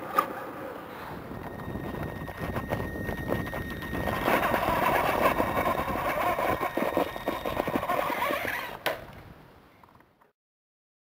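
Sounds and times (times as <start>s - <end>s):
electric motor whining: 1.3s - 8.8s
tyres scrabbling on rock: 3.3s - 8.7s.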